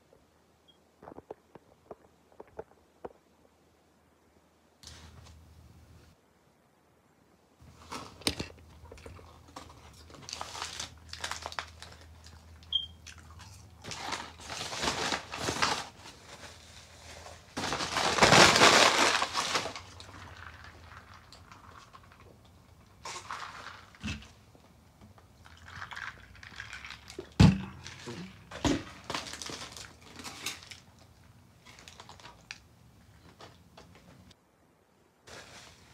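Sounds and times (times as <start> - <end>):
paper wrapper crinkling: 7.6 - 24.4, 25.4 - 32.7
chewing: 11.8 - 14.0.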